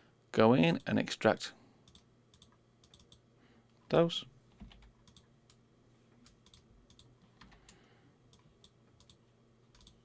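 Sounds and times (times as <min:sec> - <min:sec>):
low room hum: 0:00.0 - 0:10.0
mouse and keyboard clicks: 0:08.3 - 0:10.0.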